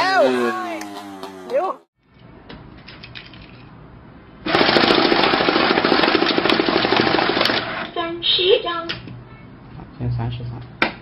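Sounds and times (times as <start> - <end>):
banknote counting machine rattling: 4.5 - 7.8.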